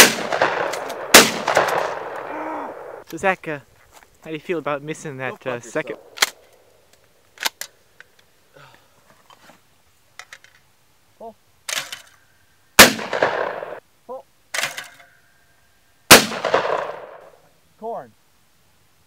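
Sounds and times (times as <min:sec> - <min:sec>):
shotgun blasts echoing: 0:00.0 - 0:03.0, 0:12.8 - 0:13.8, 0:16.1 - 0:17.3.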